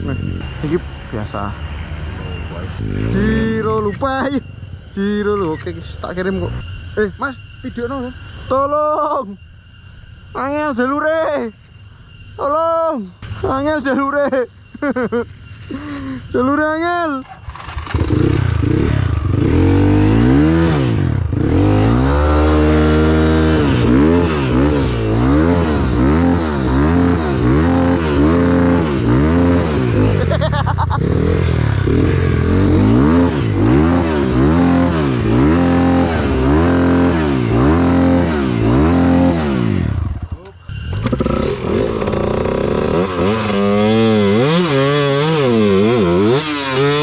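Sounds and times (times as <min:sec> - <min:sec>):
motorcycle engine revving hard: 0:00.0 - 0:04.2, 0:17.2 - 0:47.0.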